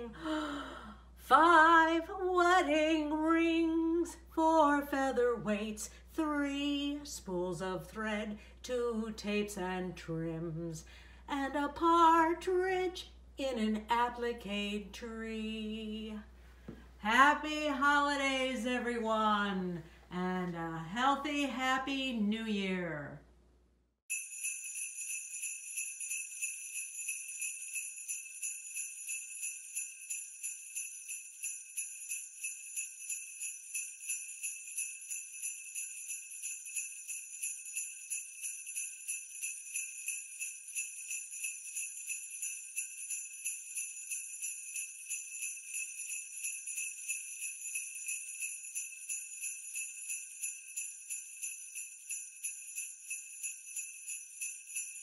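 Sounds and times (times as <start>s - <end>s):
sleigh bells jingling: 24.1s - 55.0s.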